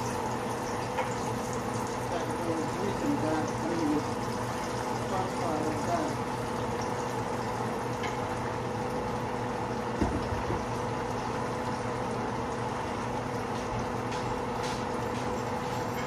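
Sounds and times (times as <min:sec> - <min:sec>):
pot bubbling and hissing: 0:00.0 - 0:16.0.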